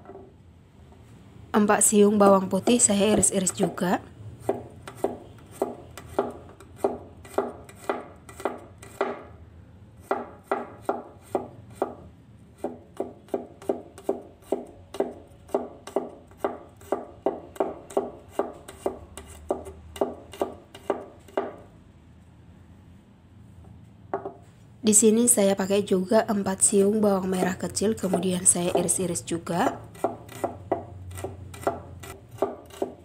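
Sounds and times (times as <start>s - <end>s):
cleaver chopping on wooden board: 4.5s - 9.3s, 10.0s - 12.0s, 12.6s - 21.6s, 30.0s - 33.0s.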